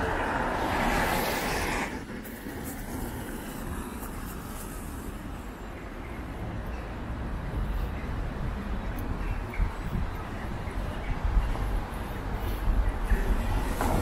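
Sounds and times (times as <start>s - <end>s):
tyres hissing on wet road: 0.0s - 5.6s.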